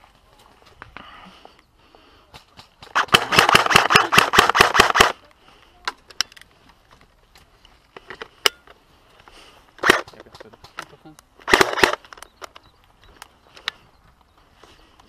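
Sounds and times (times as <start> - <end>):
airsoft rifle full-auto burst: 3.0 - 5.2, 11.4 - 12.0
sharp clicks: 9.8 - 14.3.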